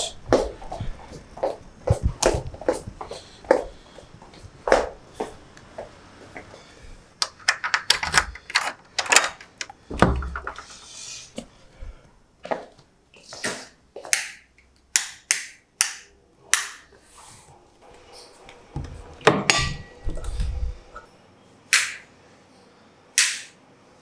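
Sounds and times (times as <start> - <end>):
footsteps on hard floor: 0.2 - 6.5, 17.9 - 19.4.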